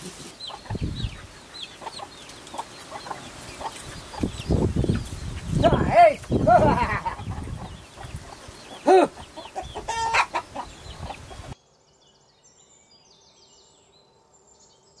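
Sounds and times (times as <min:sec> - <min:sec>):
chickens clucking: 0:00.0 - 0:11.6.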